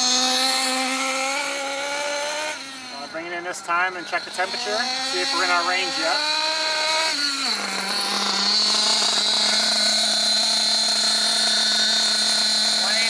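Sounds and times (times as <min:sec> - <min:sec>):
nitro engine idling: 0:00.0 - 0:13.0
high whine: 0:02.6 - 0:13.0.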